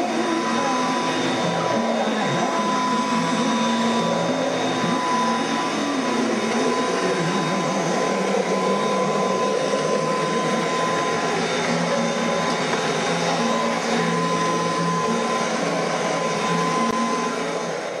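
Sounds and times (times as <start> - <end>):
vacuum cleaner running: 0.0 - 18.0.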